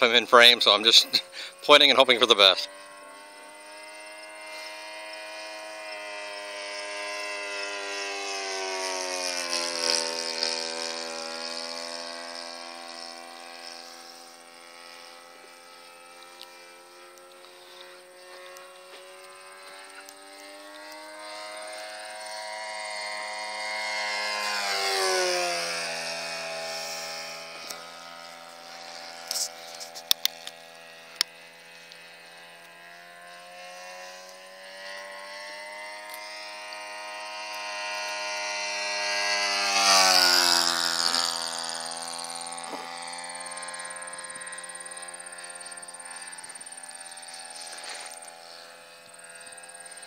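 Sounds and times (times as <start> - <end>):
model plane engine buzzing: 0.0 - 50.0.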